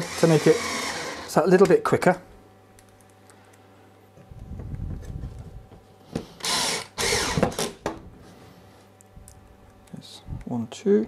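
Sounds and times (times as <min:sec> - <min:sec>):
cordless drill driving screw: 0:00.0 - 0:01.3, 0:06.4 - 0:07.8.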